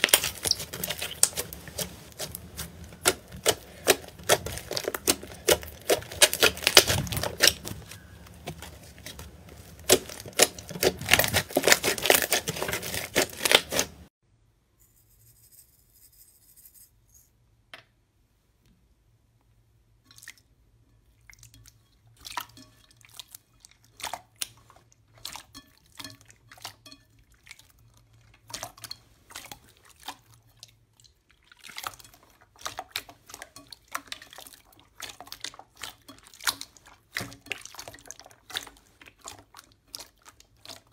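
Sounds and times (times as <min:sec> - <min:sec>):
slime crackling and popping: 0:00.0 - 0:14.1.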